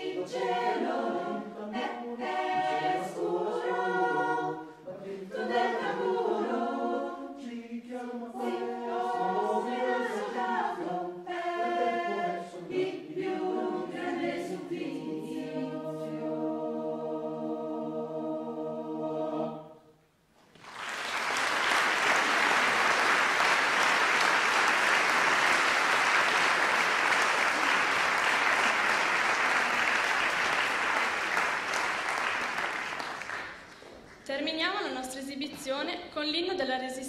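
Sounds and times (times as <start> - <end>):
a cappella choir chord: 0.0 - 20.0
audience applauding: 20.4 - 34.3.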